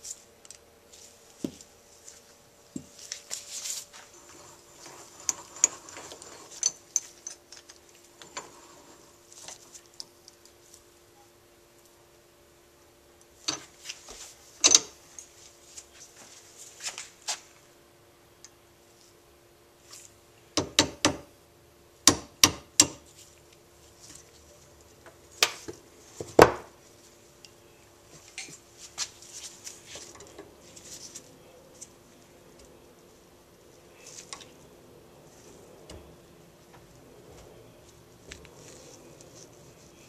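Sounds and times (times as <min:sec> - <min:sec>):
light tool clinks and rubbing: 0:00.0 - 0:10.8, 0:27.0 - 0:32.7.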